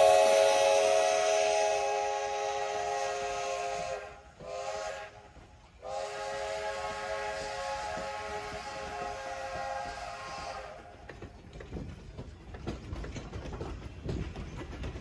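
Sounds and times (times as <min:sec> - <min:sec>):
steam locomotive whistle: 0:00.0 - 0:11.1.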